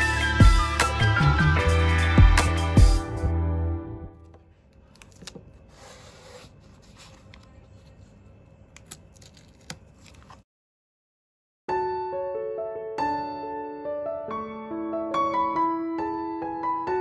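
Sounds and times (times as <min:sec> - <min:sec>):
hands handling canvas and paint tube: 0:04.2 - 0:10.4.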